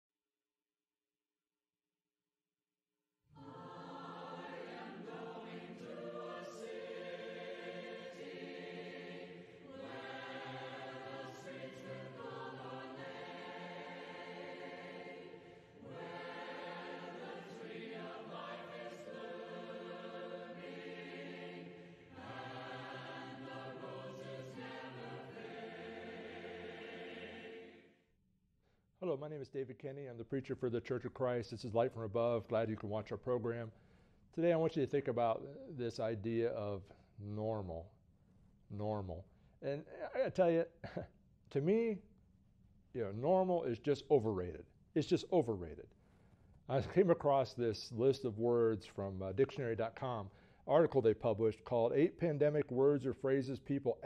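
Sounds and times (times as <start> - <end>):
choir singing a hymn: 3.4 - 28.0.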